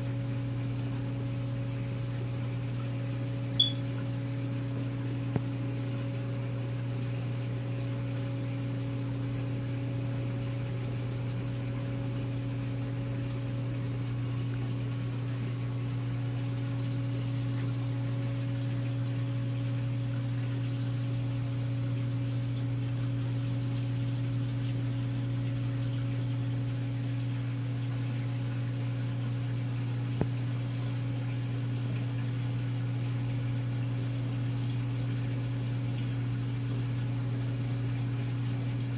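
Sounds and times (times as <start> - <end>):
aquarium pump humming: 0.0 - 38.9
circulating water rushing: 0.0 - 38.9.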